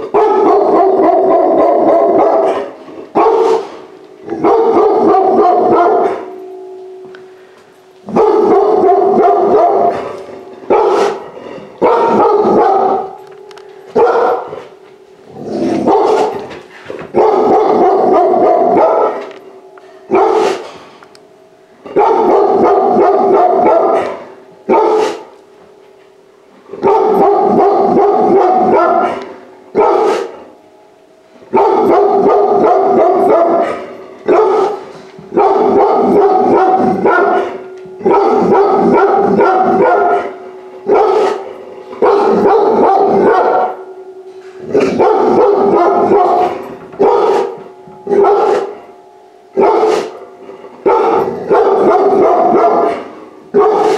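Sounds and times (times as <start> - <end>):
puppy barking: 0.0 - 3.8, 4.4 - 6.3, 8.1 - 11.2, 11.8 - 13.2, 14.0 - 14.7, 15.8 - 16.5, 17.1 - 19.3, 20.1 - 20.6, 22.0 - 25.2, 26.8 - 30.3, 31.6 - 41.4, 42.0 - 43.8, 44.8 - 48.8, 49.6 - 50.1, 50.9 - 53.9
faint steady hum: 0.0 - 53.7.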